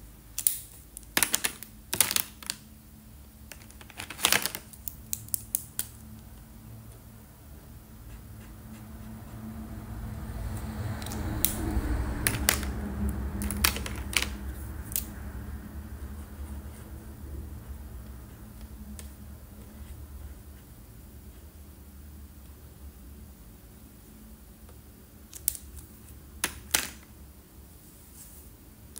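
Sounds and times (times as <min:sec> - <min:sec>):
low steady hum: 0:00.0 - 0:28.9
marker caps clicking: 0:00.4 - 0:02.6, 0:12.3 - 0:12.7, 0:13.4 - 0:15.1, 0:25.3 - 0:27.0
rustling handling noise: 0:03.5 - 0:04.9.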